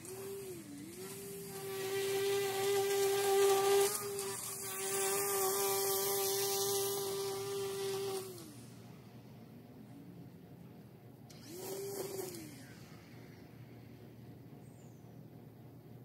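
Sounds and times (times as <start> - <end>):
string trimmer whining: 0.0 - 9.1, 11.2 - 14.6.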